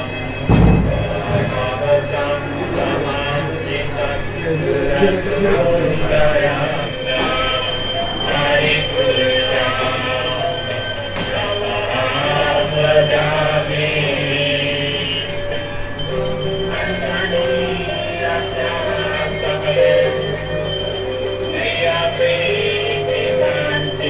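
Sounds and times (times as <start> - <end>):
devotional melody of held notes: 0.0 - 24.0
bells jingling and ringing: 6.2 - 24.0.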